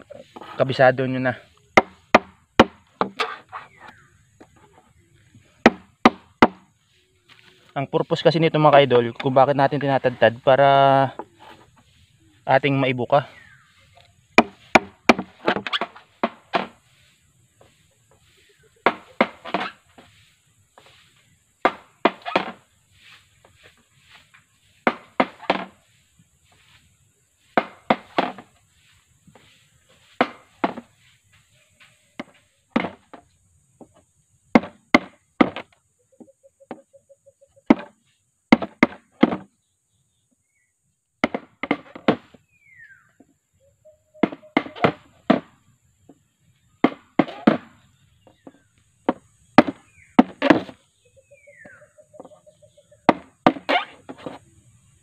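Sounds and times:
machete chopping bamboo: 0:01.8 - 0:04.0, 0:05.6 - 0:06.7, 0:14.4 - 0:16.8, 0:18.8 - 0:19.8, 0:21.6 - 0:22.6, 0:24.8 - 0:25.8, 0:27.5 - 0:28.5, 0:30.1 - 0:30.9, 0:32.2 - 0:33.2, 0:34.6 - 0:35.8, 0:37.7 - 0:39.5, 0:41.2 - 0:42.4, 0:44.2 - 0:45.6, 0:46.8 - 0:47.8, 0:48.4 - 0:50.8, 0:53.1 - 0:54.4.

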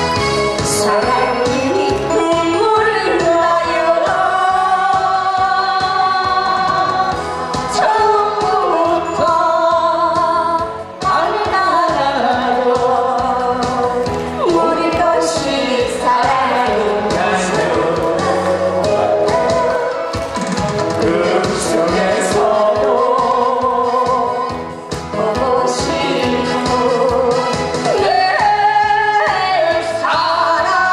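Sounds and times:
amplified backing music with beat: 0:00.0 - 0:30.9
woman singing into microphone: 0:00.6 - 0:20.2, 0:21.0 - 0:30.9.

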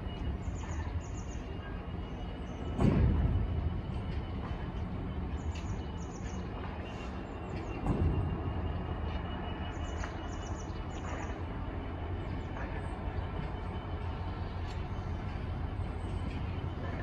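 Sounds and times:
steel wheels rumbling on rail: 0:00.0 - 0:17.0.

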